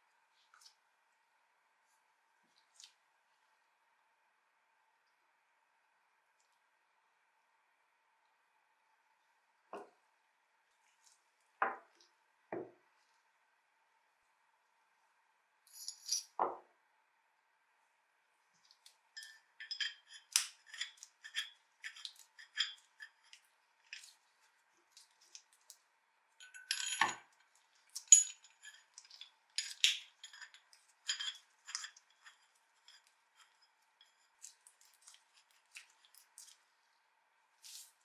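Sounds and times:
metal wrench parts clinking: 15.7 - 16.4, 26.4 - 27.2, 28.0 - 28.8, 29.6 - 32.3.

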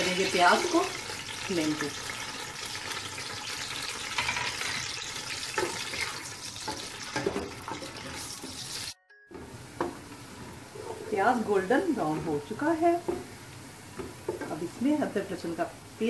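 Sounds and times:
onions sizzling in hot oil: 0.0 - 16.0
wooden spoon knocking on pot: 13.0 - 13.3, 14.0 - 14.6.

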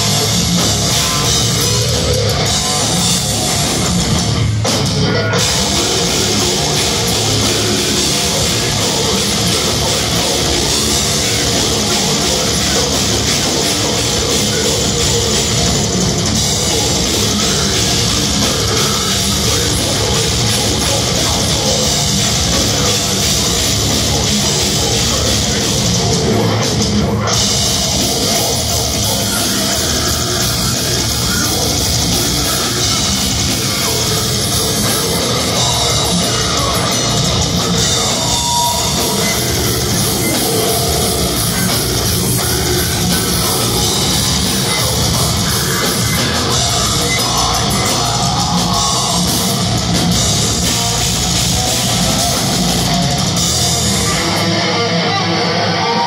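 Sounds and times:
live death metal band: 0.0 - 56.0.

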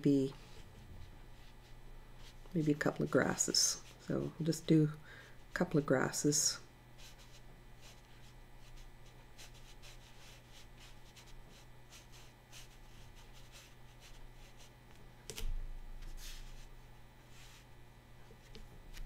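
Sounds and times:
steady low hum: 0.0 - 19.0
brush strokes on paper: 0.3 - 4.7, 7.0 - 14.8, 16.0 - 17.7.

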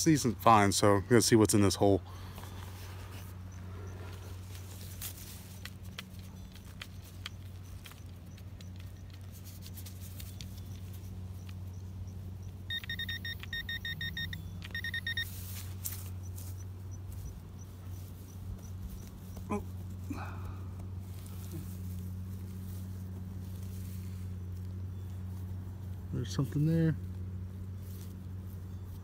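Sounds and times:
steady low hum: 0.0 - 29.0
metal detector beeping: 10.4 - 17.4.

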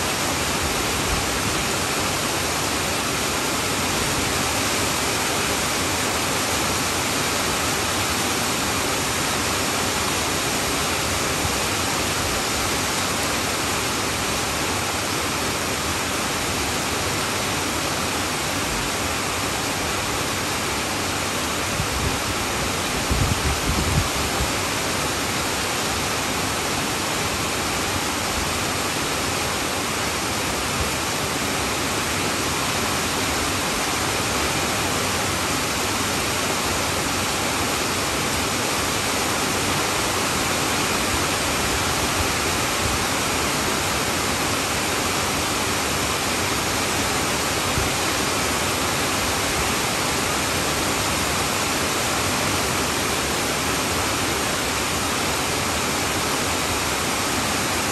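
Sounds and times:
heavy rain on a tin roof: 0.0 - 57.9.

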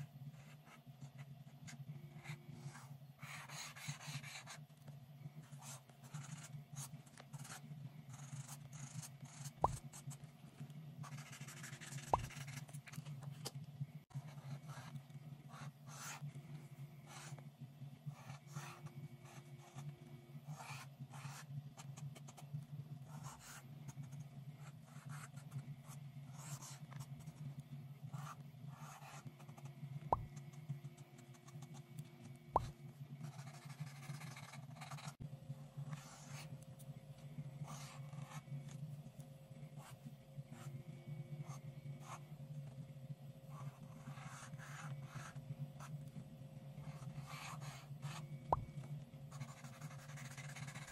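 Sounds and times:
steady low hum: 0.0 - 50.9
marker scratching on paper: 2.2 - 4.6, 5.5 - 10.2, 11.0 - 12.8, 14.2 - 16.2, 18.2 - 19.9, 20.5 - 22.4, 23.1 - 24.2, 24.9 - 27.4, 28.1 - 31.7, 32.6 - 35.2, 35.9 - 36.5, 37.6 - 38.4, 43.5 - 45.9, 46.8 - 48.7, 49.3 - 50.9.

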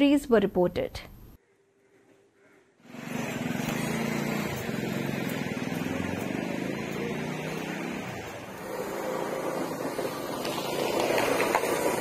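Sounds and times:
street noise: 1.8 - 12.0
vehicle engine running: 2.4 - 12.0.

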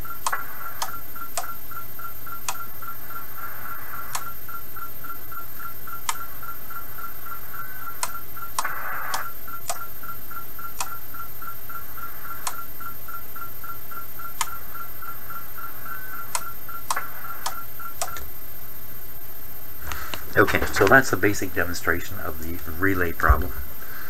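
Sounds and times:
button and relay clicks: 0.0 - 2.7, 4.0 - 4.6, 6.0 - 6.3, 7.8 - 9.9, 10.6 - 11.3, 12.3 - 13.0, 14.3 - 14.6, 16.2 - 18.3
pulsing tone: 0.0 - 18.9
radio receiver hiss: 0.0 - 24.0.

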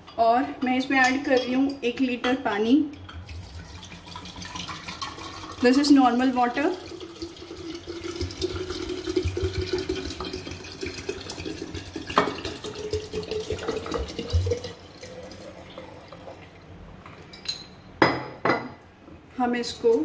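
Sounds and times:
water pouring into glass jar: 3.2 - 16.7.

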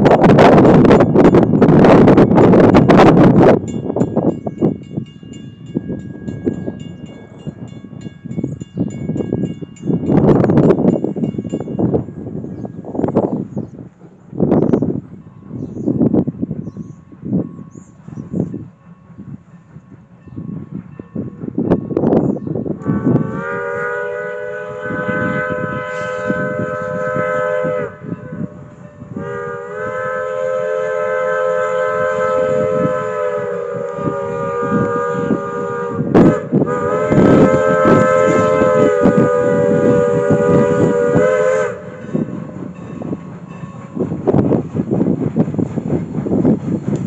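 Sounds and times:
train rumbling by: 0.0 - 47.0
locomotive exhaust chuffing: 12.0 - 47.0
steam locomotive whistle: 22.7 - 44.4.

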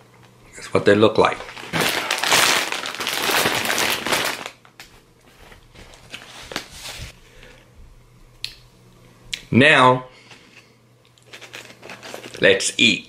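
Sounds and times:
plastic snack bag crinkling: 1.3 - 4.8, 11.2 - 12.6.

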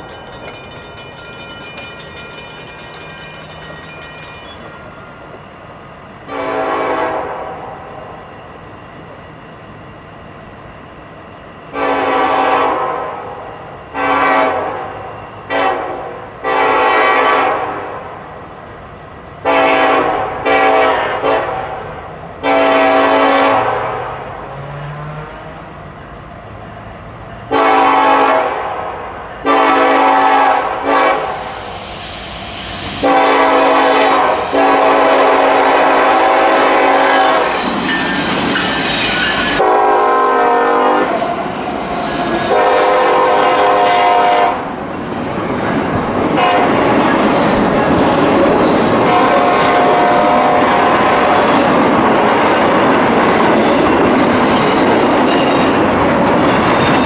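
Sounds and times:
locomotive air horn blasts: 6.3 - 7.8, 11.8 - 13.4, 14.0 - 18.0, 19.4 - 21.8, 22.4 - 24.2, 27.5 - 31.4, 33.0 - 37.6, 39.6 - 41.2, 42.5 - 44.7, 46.4 - 46.7, 49.1 - 51.6.

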